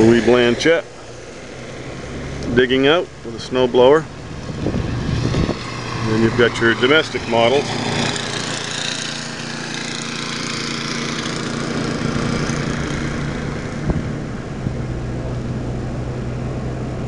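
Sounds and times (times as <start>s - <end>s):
car driving on snow: 0.0s - 17.0s
snow blower engine: 4.1s - 15.9s
car thump over bump: 13.8s - 15.4s.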